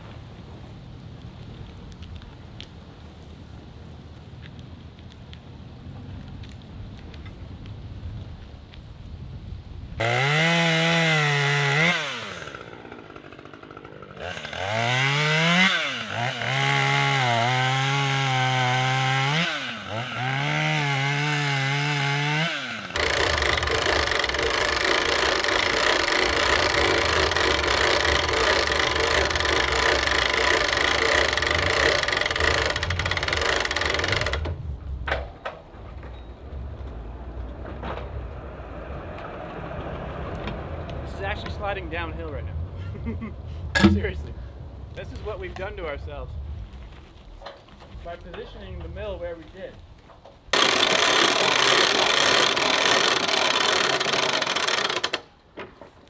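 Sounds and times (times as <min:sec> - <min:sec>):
engine revving: 0:10.0 - 0:34.6.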